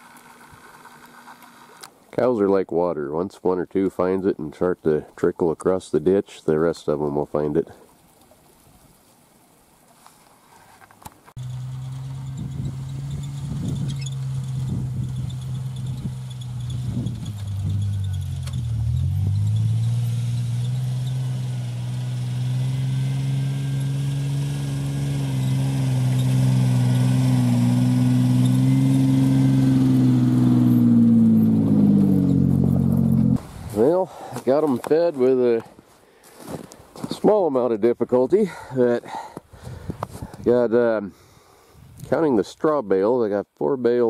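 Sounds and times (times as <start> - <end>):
truck engine running under load: 11.4 - 33.4.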